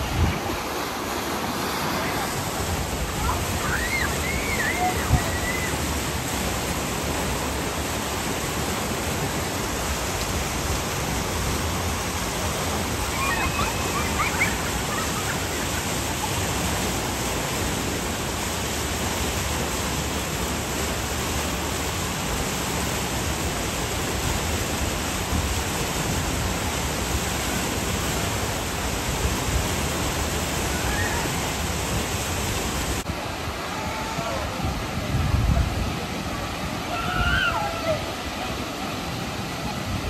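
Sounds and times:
churning water rushing: 0:00.0 - 0:40.0.

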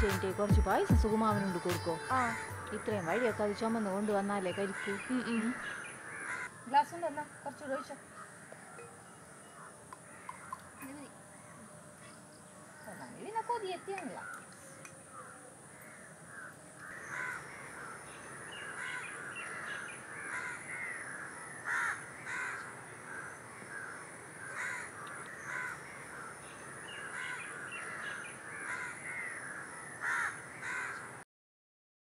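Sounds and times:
crows cawing: 0:02.1 - 0:03.5, 0:04.4 - 0:11.6, 0:12.6 - 0:31.2.

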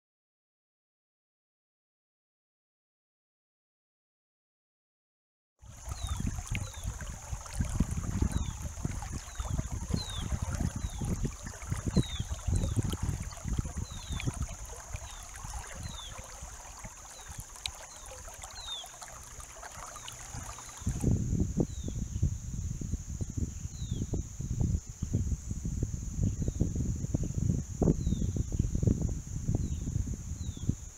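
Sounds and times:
river water rippling over pebbles: 0:05.6 - 0:21.1
wind rumbling on microphone: 0:05.6 - 0:30.9
bird chirping: 0:09.2 - 0:11.1, 0:13.8 - 0:21.0.

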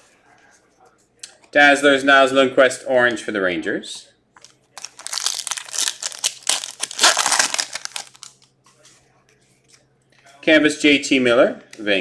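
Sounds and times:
foil wrapper crinkling and tearing: 0:04.7 - 0:08.5.

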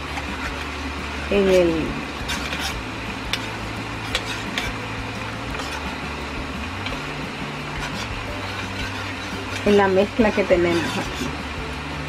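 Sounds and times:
sauce sizzling in pan: 0:00.0 - 0:12.0
metal spoon stirring in cup: 0:02.2 - 0:03.5, 0:04.1 - 0:04.8, 0:05.5 - 0:06.0, 0:07.7 - 0:11.4.

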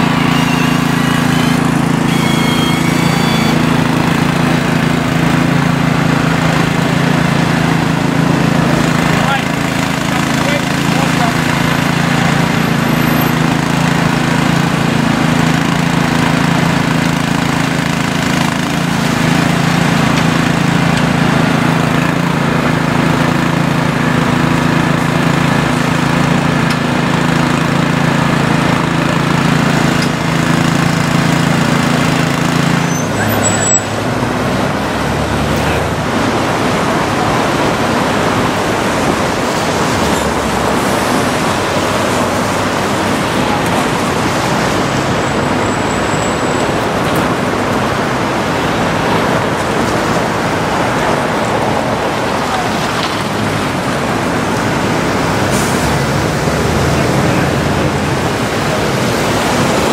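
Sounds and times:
small engine humming: 0:00.0 - 0:34.0
street traffic noise: 0:00.0 - 0:59.9.

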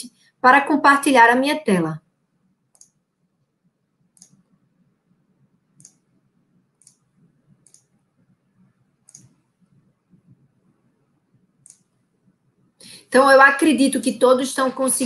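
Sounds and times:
computer mouse clicks: 0:02.7 - 0:03.0, 0:04.1 - 0:04.6, 0:05.8 - 0:06.1, 0:06.8 - 0:08.0, 0:09.0 - 0:10.5, 0:11.6 - 0:12.0.

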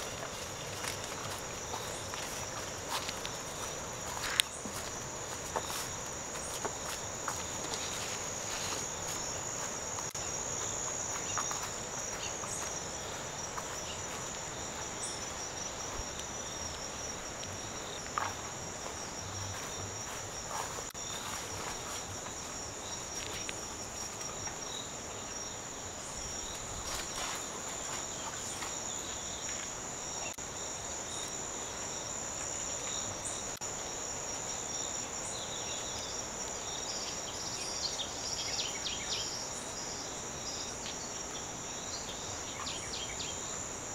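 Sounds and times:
faint footsteps: 0:00.0 - 0:24.6, 0:26.3 - 0:29.8
insects buzzing: 0:00.0 - 0:43.9.

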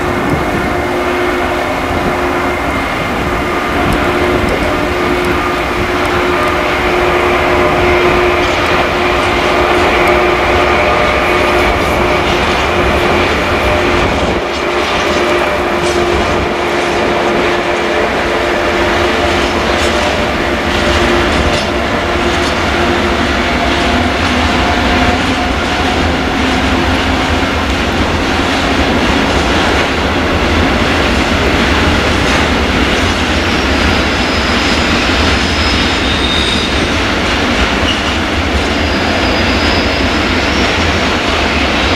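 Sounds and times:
freight train rolling past: 0:00.0 - 0:41.9
high-pitched wheel squeal: 0:33.4 - 0:37.2, 0:37.8 - 0:41.0.

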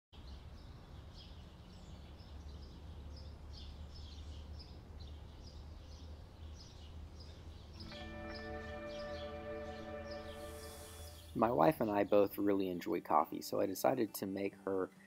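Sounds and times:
faint birdsong chirps: 0:00.2 - 0:15.0
music: 0:07.8 - 0:13.1.

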